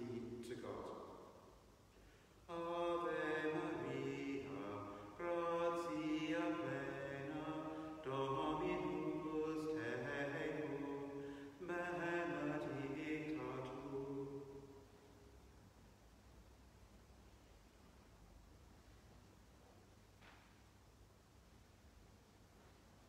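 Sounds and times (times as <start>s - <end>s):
man singing slow chant: 2.4s - 14.8s.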